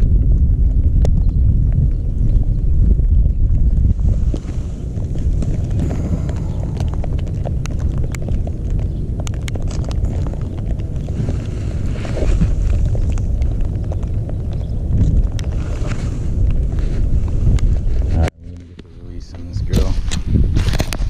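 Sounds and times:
wind buffeting microphone: 0:00.0 - 0:21.0
microphone handling clicks: 0:17.4 - 0:21.0.

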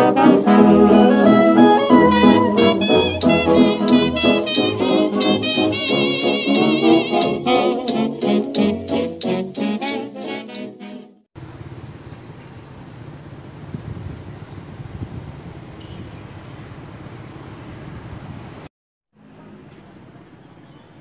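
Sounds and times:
street traffic rumble: 0:00.0 - 0:10.6, 0:11.4 - 0:21.0
background music: 0:00.0 - 0:11.2.

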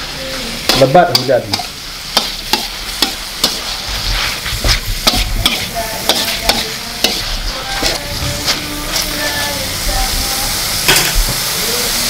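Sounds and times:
metal spatula scraping a wok: 0:00.0 - 0:09.9
frying sizzle: 0:00.0 - 0:12.0.

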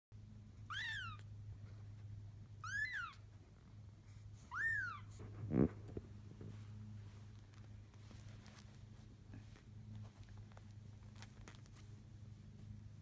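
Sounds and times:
steady low hum: 0:00.2 - 0:13.0
kitten mewing: 0:00.7 - 0:01.3, 0:02.6 - 0:03.2.

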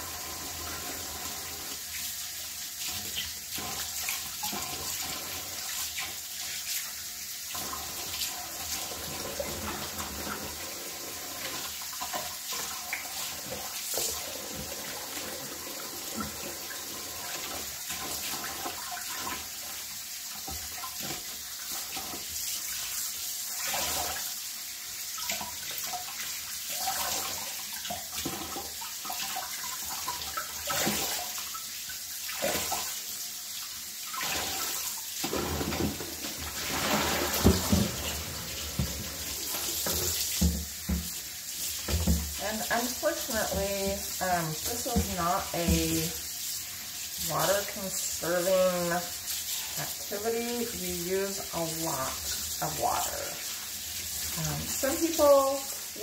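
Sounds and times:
faucet running into sink: 0:00.0 - 0:56.0
water splashing: 0:34.0 - 0:46.4.

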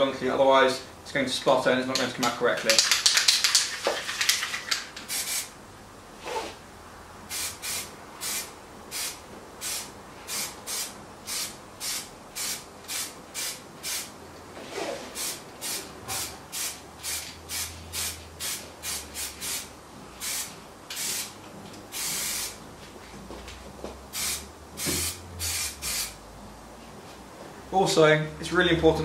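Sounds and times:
aerosol spray bursts: 0:05.1 - 0:05.5, 0:07.3 - 0:14.1, 0:15.2 - 0:22.6, 0:24.1 - 0:26.2.

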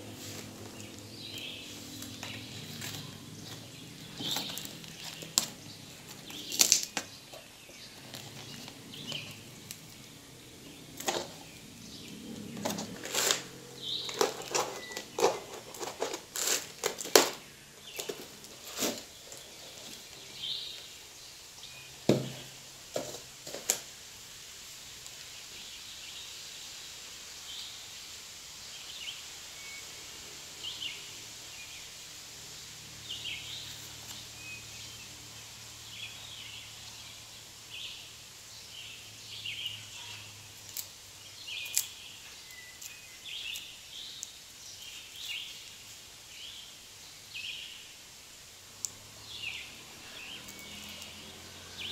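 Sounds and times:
plastic film crinkling: 0:00.1 - 0:10.1, 0:12.5 - 0:20.2
cardboard and tape tearing: 0:01.8 - 0:07.1, 0:12.4 - 0:20.2.

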